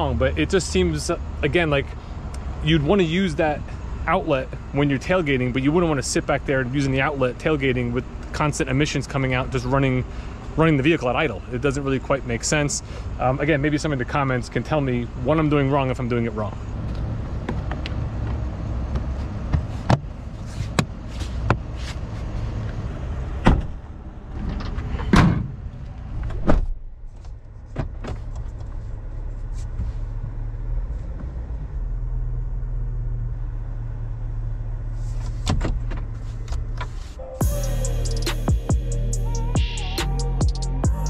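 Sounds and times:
steady low hum: 0:36.8 - 0:41.0.

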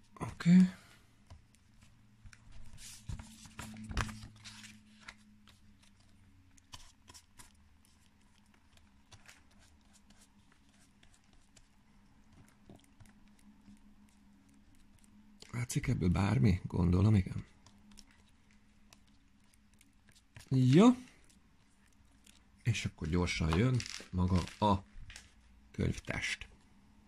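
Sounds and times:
paper rustling and crinkling: 0:01.7 - 0:13.8, 0:17.4 - 0:25.4.

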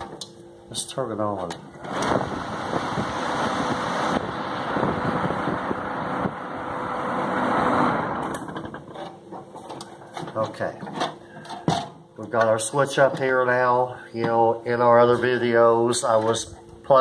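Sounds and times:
blower fan rushing air: 0:00.0 - 0:17.0
faint motor hum: 0:00.0 - 0:17.0.

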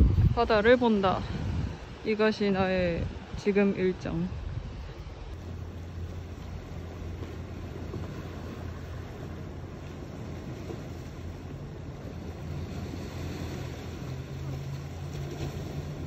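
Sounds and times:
deep engine-like hum: 0:04.0 - 0:16.0
waves washing against rocks: 0:05.4 - 0:16.0.

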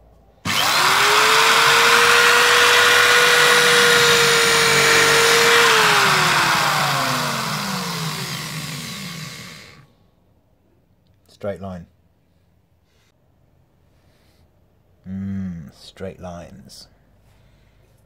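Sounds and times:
electric drill whining: 0:00.4 - 0:09.8.

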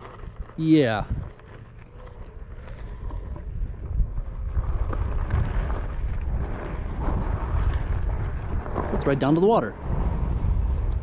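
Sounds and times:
grit crackling under tire: 0:00.0 - 0:11.0
wind rumbling on microphone: 0:00.0 - 0:11.0.

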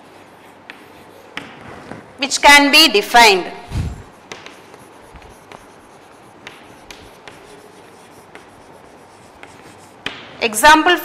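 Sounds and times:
chalk tapping on board: 0:00.0 - 0:01.7, 0:04.2 - 0:10.4
chalk scratching on chalkboard: 0:00.0 - 0:02.0, 0:04.1 - 0:10.4.

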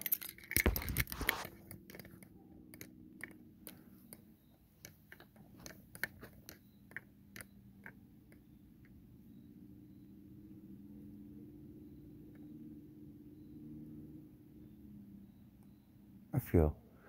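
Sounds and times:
belongings handling knocks and clicks: 0:00.0 - 0:09.0
faint low hum: 0:00.1 - 0:17.0.

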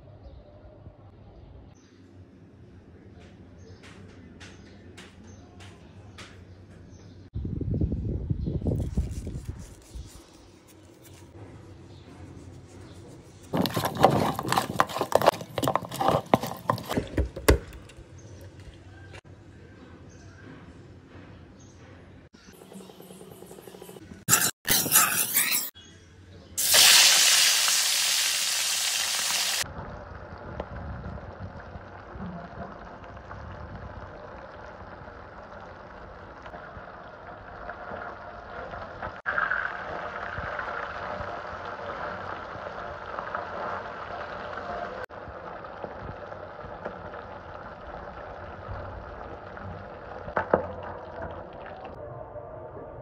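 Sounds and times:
fish sizzling in hot oil: 0:26.6 - 0:29.7, 0:39.2 - 0:44.6.

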